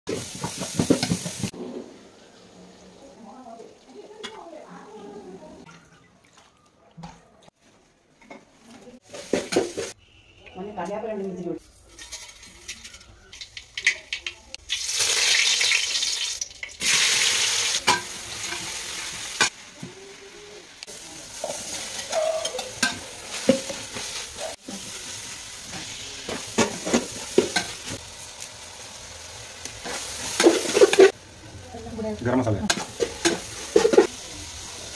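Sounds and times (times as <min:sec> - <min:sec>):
food sizzling in oil: 0:00.1 - 0:05.0, 0:09.0 - 0:10.0, 0:11.7 - 0:34.9.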